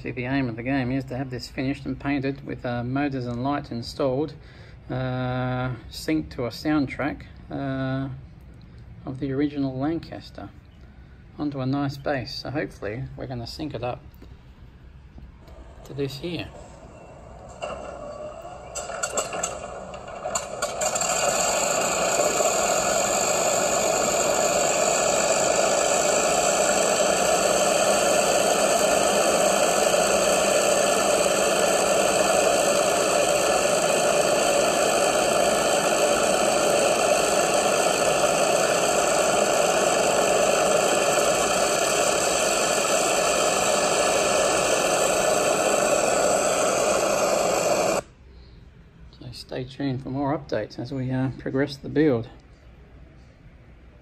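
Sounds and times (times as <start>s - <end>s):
propeller aircraft engines running: 17.5s - 48.0s.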